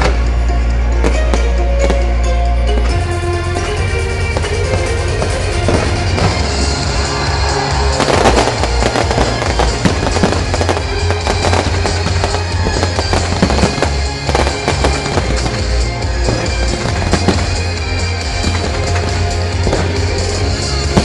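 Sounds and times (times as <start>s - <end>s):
fireworks crackling and popping: 0.0s - 21.0s
music with heavy bass: 0.0s - 21.0s.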